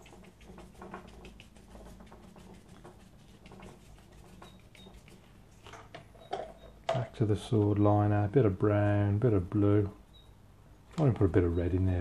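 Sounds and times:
brush bristles on paper: 0.0s - 5.7s
low steady hum: 0.0s - 12.0s.

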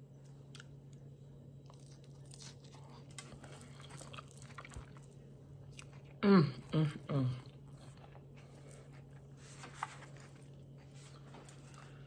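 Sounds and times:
steady low hum: 0.0s - 12.0s
crunchy chewing: 0.2s - 6.2s.

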